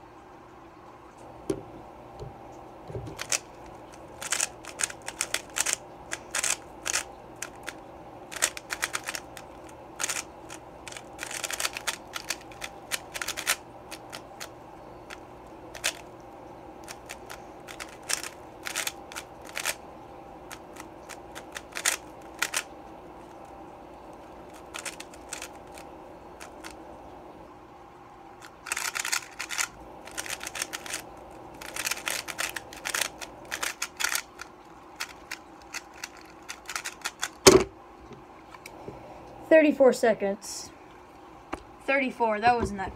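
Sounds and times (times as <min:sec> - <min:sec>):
puzzle cube layers clicking: 0:03.2 - 0:03.5, 0:04.2 - 0:09.4, 0:10.0 - 0:10.3, 0:10.9 - 0:14.2, 0:28.6 - 0:31.0, 0:31.6 - 0:37.4.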